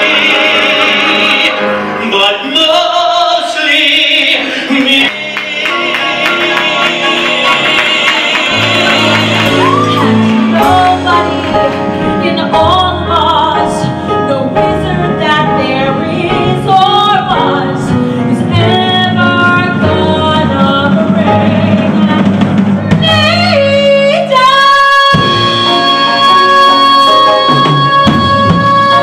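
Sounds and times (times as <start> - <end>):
instrumental accompaniment: 4.8 - 29.0
woman singing into a microphone: 9.6 - 29.0.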